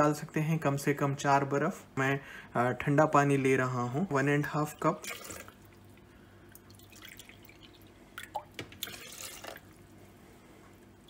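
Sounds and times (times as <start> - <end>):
water splashes: 4.7 - 9.9.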